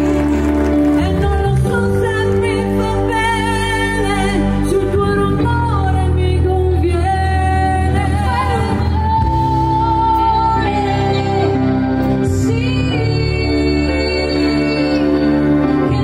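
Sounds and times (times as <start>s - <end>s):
live pop band playing: 0.0s - 16.0s
woman singing: 0.8s - 16.0s.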